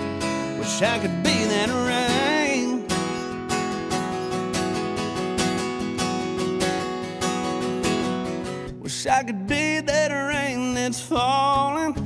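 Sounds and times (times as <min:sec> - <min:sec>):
acoustic guitar strumming: 0:00.0 - 0:12.0
person singing: 0:00.2 - 0:03.2, 0:08.8 - 0:12.0.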